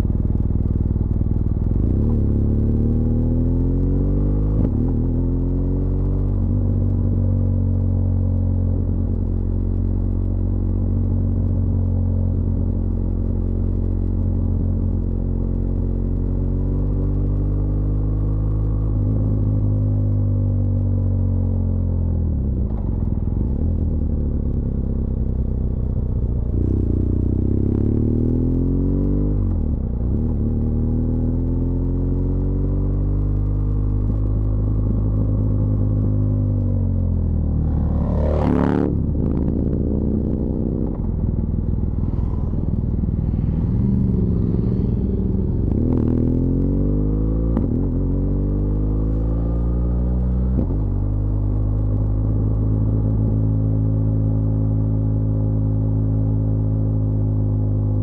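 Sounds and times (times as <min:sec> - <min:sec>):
motorcycle engine running: 0:33.4 - 0:46.8.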